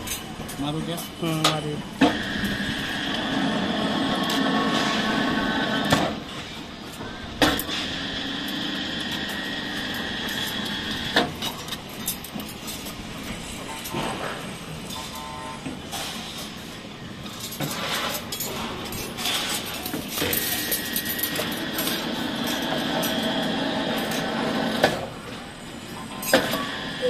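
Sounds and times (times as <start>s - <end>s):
motor hum and whine: 1.4s - 12.2s, 20.2s - 27.0s.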